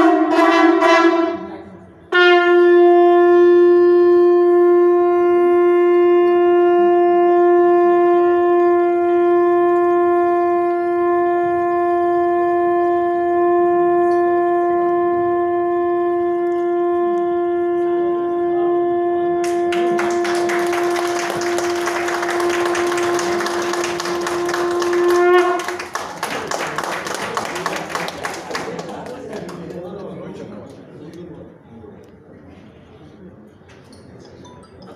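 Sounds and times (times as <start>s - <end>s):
conch shell long note: 0.0s - 28.7s
people clapping: 19.4s - 31.2s.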